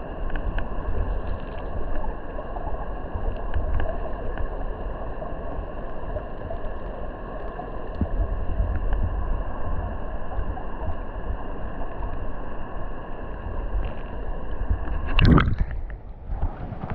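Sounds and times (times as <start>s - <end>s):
water rushing underwater: 0.0s - 16.9s
faint ticks: 0.2s - 2.1s, 3.1s - 9.1s
water whoosh: 14.7s - 16.9s.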